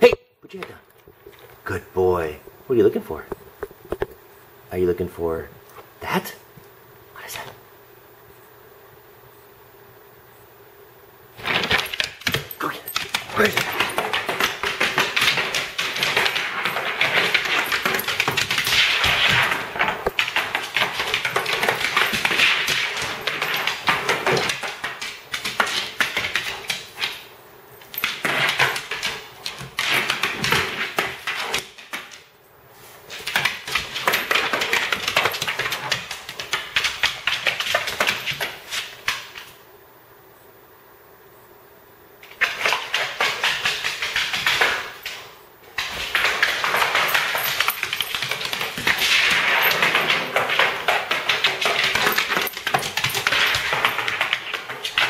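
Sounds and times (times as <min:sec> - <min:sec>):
dog claws scrabbling on wood floor: 0:11.4 - 0:32.3, 0:32.9 - 0:39.6, 0:42.2 - 0:55.0.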